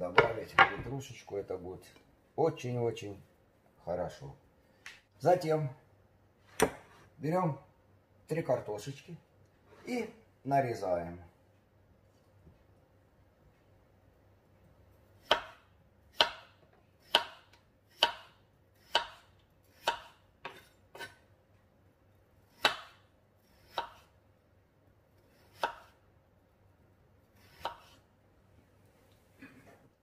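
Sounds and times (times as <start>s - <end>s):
knife slicing potato on board: 15.2s - 21.2s, 22.5s - 24.2s, 25.2s - 26.0s, 27.3s - 28.0s.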